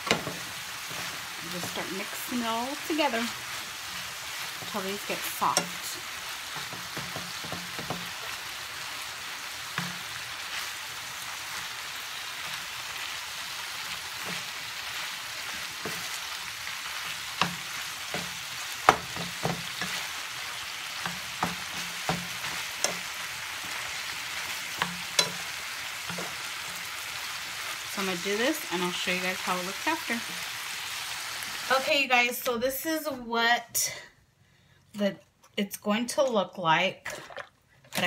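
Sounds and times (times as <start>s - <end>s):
meat and peppers sizzling in pan: 0.0s - 32.5s
wooden spatula knocking on pan: 6.5s - 8.2s, 17.4s - 20.0s, 21.0s - 23.1s.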